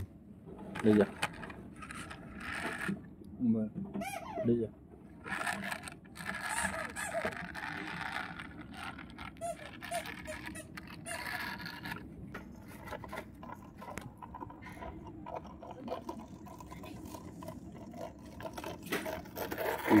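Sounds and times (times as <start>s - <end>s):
toy wheels scraping on carpet: 0.7s - 3.0s, 5.2s - 20.0s
small plastic clicks: 5.2s - 12.0s.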